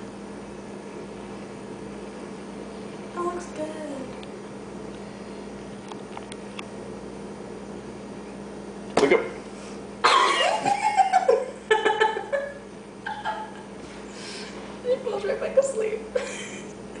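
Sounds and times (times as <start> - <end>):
steady low hum: 0.0 - 17.0
person coughing or laughing: 10.0 - 10.9.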